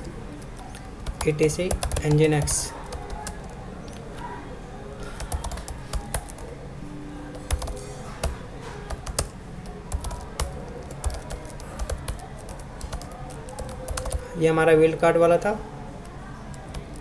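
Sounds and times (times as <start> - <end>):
typing on computer keyboard: 0.0 - 4.3, 5.0 - 6.6, 7.3 - 14.4, 16.5 - 17.0.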